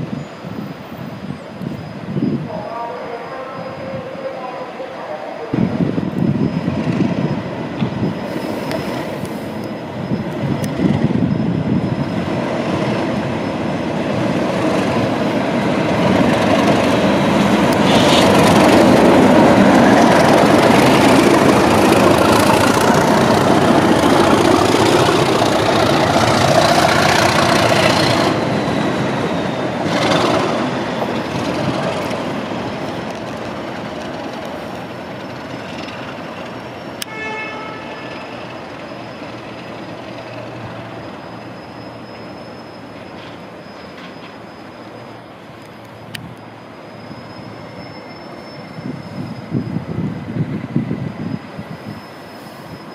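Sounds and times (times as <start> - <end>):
diesel locomotives passing: 0.0 - 52.9.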